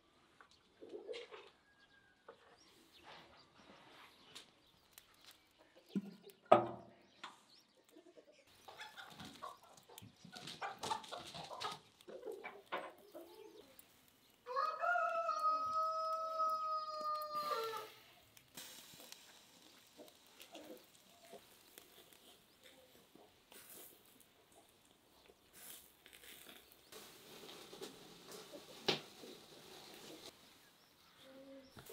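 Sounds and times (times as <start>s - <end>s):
rooster crowing: 14.4s - 17.9s.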